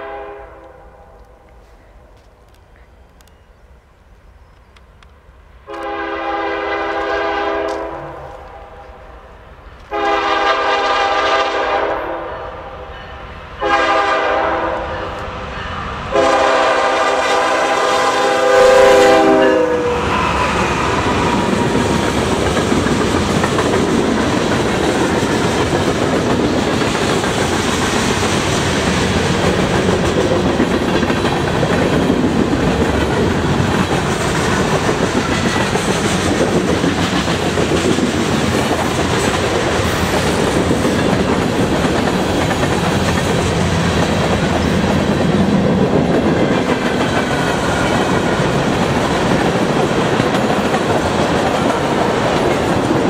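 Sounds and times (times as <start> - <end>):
train air horn blasts: 0.0 - 1.2, 5.7 - 9.1, 9.9 - 21.5
freight train rolling on rails: 0.0 - 53.0.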